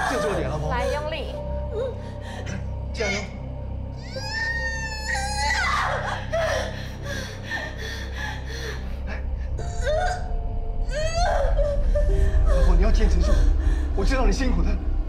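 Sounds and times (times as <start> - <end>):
low steady drone: 0.0 - 15.0
woman screaming and groaning: 4.0 - 8.8.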